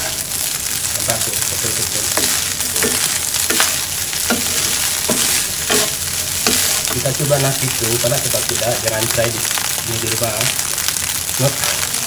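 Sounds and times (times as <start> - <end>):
rice sizzling in a wok: 0.0 - 12.0
spatula scraping a wok: 2.0 - 7.5.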